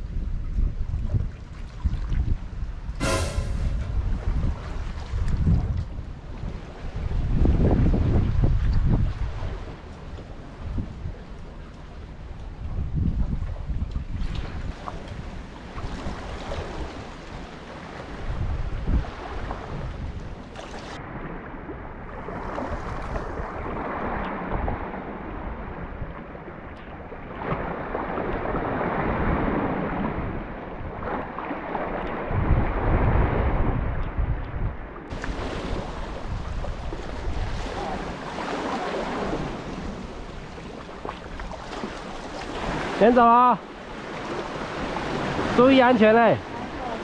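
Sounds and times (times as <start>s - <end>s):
wind buffeting microphone: 0.0s - 43.0s
waves washing against concrete: 35.1s - 47.0s.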